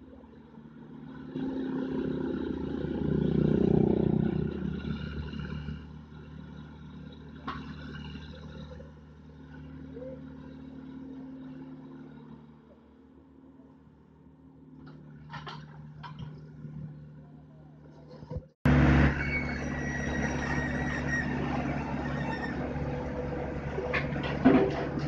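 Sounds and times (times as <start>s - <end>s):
motorbike passing: 0.6s - 13.8s, 14.8s - 25.0s
excavator diesel engine running: 14.5s - 25.0s.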